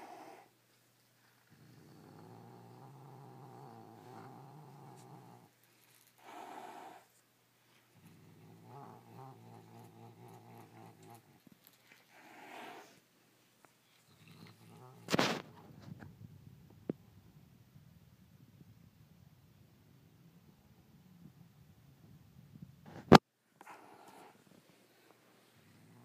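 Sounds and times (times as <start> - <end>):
cat growling: 1.4 - 5.6, 6.2 - 7.2, 7.9 - 13.0, 13.8 - 15.9, 25.5 - 26.0
cat snarling: 1.4 - 5.6, 6.2 - 7.1, 7.9 - 11.4, 12.1 - 13.0, 13.9 - 15.6, 25.5 - 26.0.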